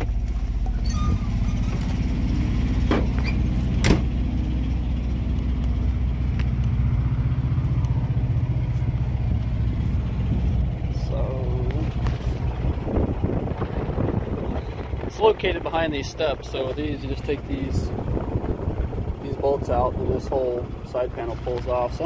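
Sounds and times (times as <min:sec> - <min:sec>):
diesel truck engine idling: 0:00.0 - 0:22.0
truck door shutting: 0:00.3 - 0:04.2.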